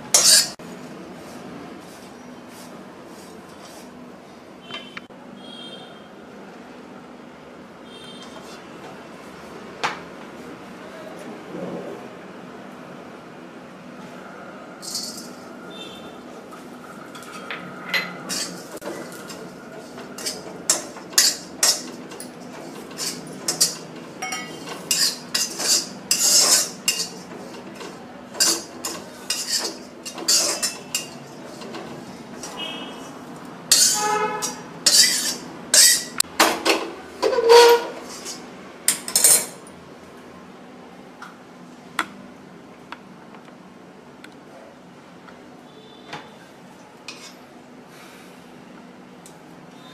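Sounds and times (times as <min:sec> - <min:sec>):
metal spatula scraping metal pan: 0:00.1 - 0:00.6, 0:18.3 - 0:27.3, 0:28.4 - 0:31.8, 0:33.7 - 0:36.2, 0:37.2 - 0:38.4.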